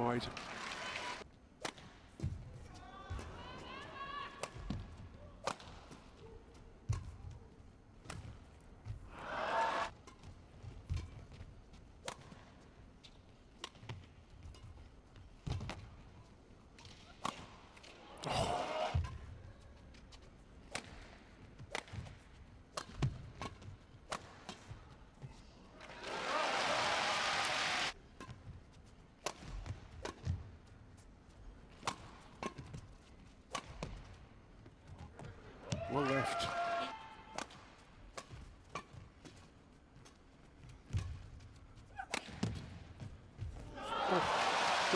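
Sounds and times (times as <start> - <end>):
badminton racket hitting shuttlecock: 5.4 - 6.0, 12.0 - 12.5, 13.5 - 14.7, 16.8 - 17.9, 20.6 - 24.8, 29.2 - 30.4, 31.7 - 32.8, 33.5 - 34.2, 37.3 - 39.4
rackets striking shuttlecock: 5.4 - 6.1, 12.0 - 12.5, 29.2 - 30.4, 31.7 - 32.9, 33.5 - 34.1, 37.3 - 39.4, 40.0 - 42.8.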